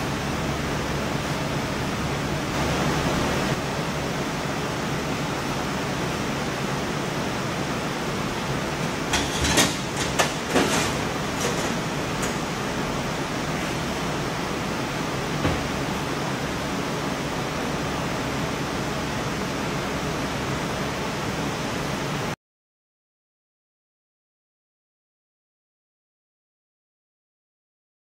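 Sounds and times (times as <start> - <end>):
steady background noise: 0.0 - 22.4
sharp knocks and clanks: 9.0 - 12.6.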